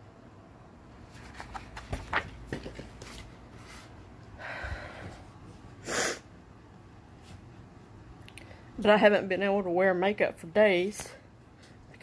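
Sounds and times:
sharp sniff: 0:05.8 - 0:06.3.

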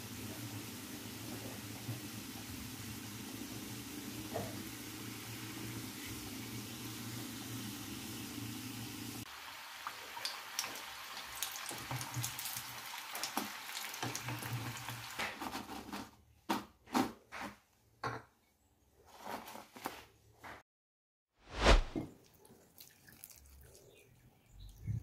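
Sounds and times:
hot oil sizzling: 0:00.0 - 0:15.2.

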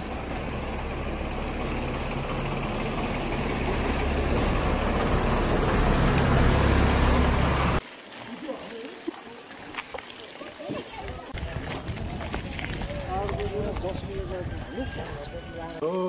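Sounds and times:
heavy vehicle engine humming: 0:00.0 - 0:07.8.

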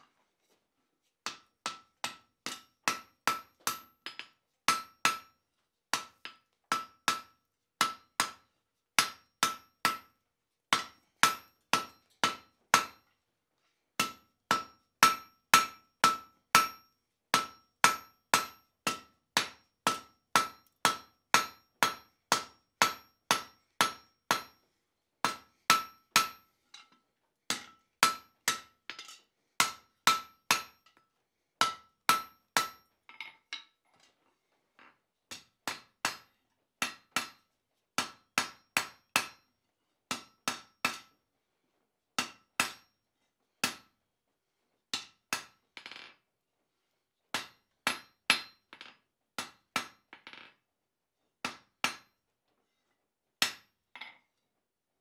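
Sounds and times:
hammer striking metal on anvil: 0:01.3 - 0:05.4, 0:06.0 - 0:08.4, 0:09.0 - 0:10.1, 0:10.7 - 0:13.0, 0:14.0 - 0:24.6, 0:25.2 - 0:31.0, 0:31.6 - 0:32.9, 0:35.3 - 0:37.4, 0:38.0 - 0:39.5, 0:40.1 - 0:41.1, 0:42.2 - 0:42.9, 0:43.6 - 0:43.9, 0:45.0 - 0:45.6, 0:47.4 - 0:48.6, 0:53.4 - 0:53.7.

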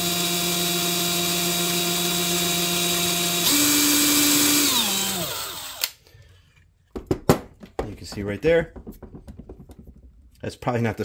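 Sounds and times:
drill motor whine: 0:00.0 - 0:06.0.

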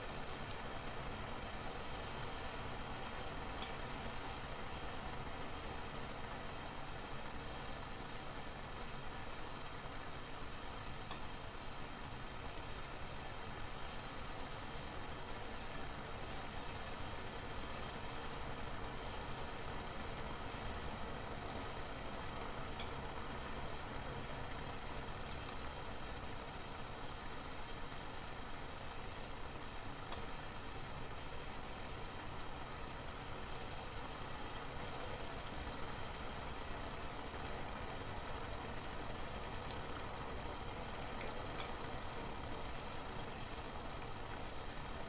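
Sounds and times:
water heating in a saucepan: 0:00.0 - 0:45.0
faint ticks: 0:03.6 - 0:03.8, 0:11.0 - 0:11.4, 0:22.6 - 0:23.0, 0:30.1 - 0:30.4, 0:39.2 - 0:40.0, 0:41.0 - 0:42.4.

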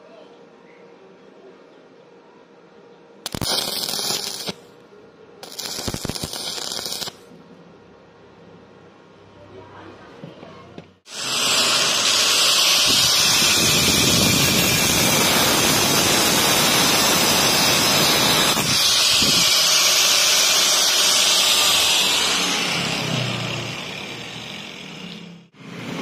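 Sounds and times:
angle grinder cutting steel: 0:03.3 - 0:04.6, 0:05.4 - 0:07.2, 0:11.1 - 0:25.9.

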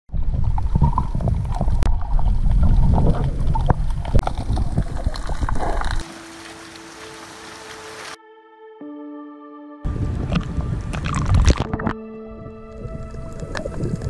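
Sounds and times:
water sloshing and bubbling: 0:00.1 - 0:08.2, 0:09.9 - 0:14.0
clicks underwater: 0:00.2 - 0:06.0, 0:10.3 - 0:12.0.

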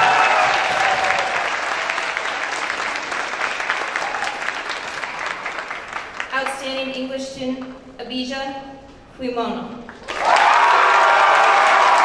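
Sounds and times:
high cheering voices: 0:00.0 - 0:05.8, 0:10.0 - 0:12.0
audience clapping: 0:00.0 - 0:06.8, 0:09.9 - 0:12.0.

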